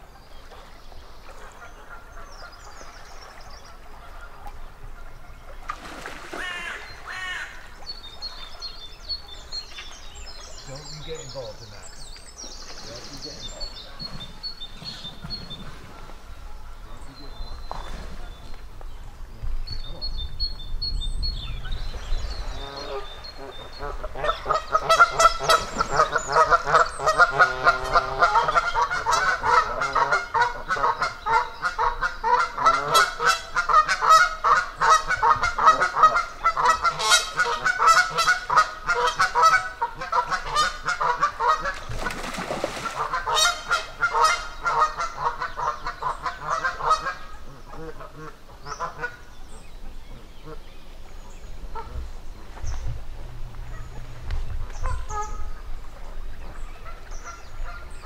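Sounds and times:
geese honking: 22.6 - 49.2, 53.6 - 55.7.

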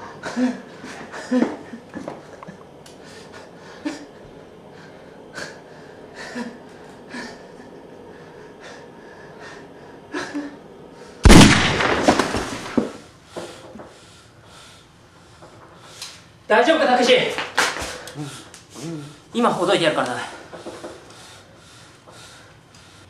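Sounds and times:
ragged gasping breaths: 0.0 - 11.2, 20.4 - 23.0
loud bang: 11.2 - 13.0.

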